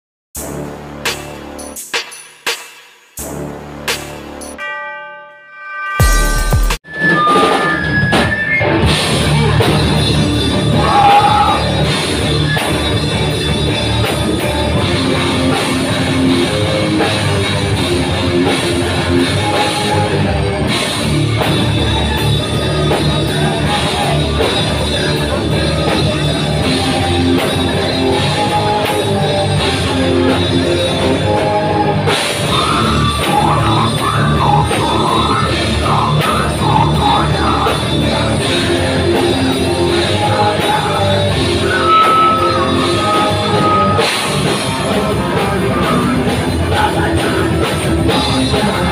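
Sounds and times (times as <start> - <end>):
heavy metal band playing: 0.4 - 2.2, 5.9 - 48.9
vocalist singing: 9.3 - 12.2, 21.8 - 48.9.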